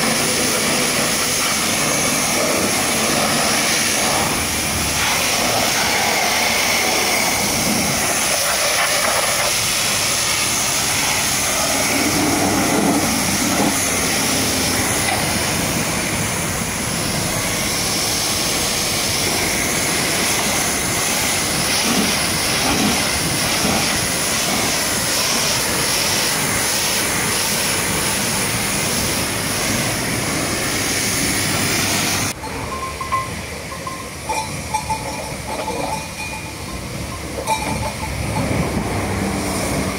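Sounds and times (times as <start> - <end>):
pressure washer spraying water: 0.0 - 39.9.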